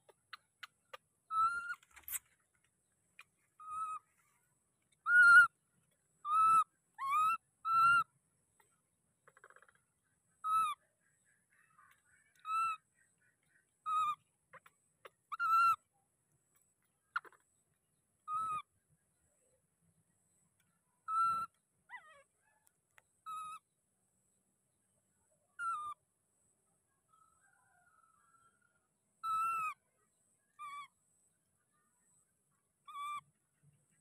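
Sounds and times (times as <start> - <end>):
baby macaque coo calls: 3.6 - 4.0, 5.0 - 5.5, 6.2 - 8.1, 12.3 - 12.8, 13.8 - 15.8, 18.3 - 18.7, 21.1 - 21.6, 29.2 - 29.8, 32.9 - 33.2.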